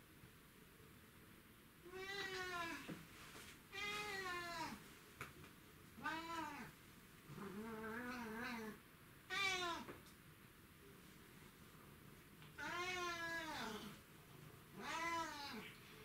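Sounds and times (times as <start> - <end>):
cat meowing: 1.9 - 2.9, 3.8 - 4.8, 6.0 - 6.7, 7.4 - 9.9, 12.6 - 13.9, 14.8 - 15.7.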